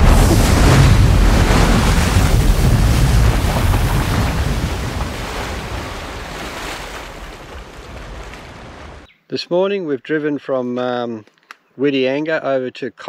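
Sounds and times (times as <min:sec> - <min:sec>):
rushing sea water: 0:00.0 - 0:09.1
wind buffeting microphone: 0:00.0 - 0:09.1.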